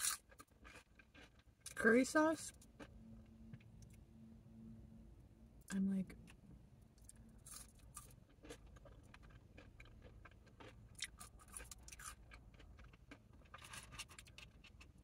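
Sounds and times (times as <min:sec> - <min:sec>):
chewing crunchy chips: 0:00.0 - 0:01.8, 0:02.5 - 0:03.0, 0:07.0 - 0:15.0
low steady hum: 0:00.0 - 0:15.0.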